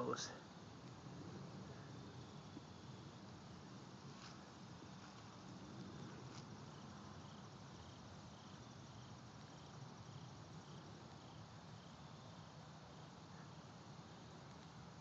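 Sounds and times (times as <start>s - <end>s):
insects chirping: 0.0s - 15.0s
low hiss: 0.0s - 15.0s.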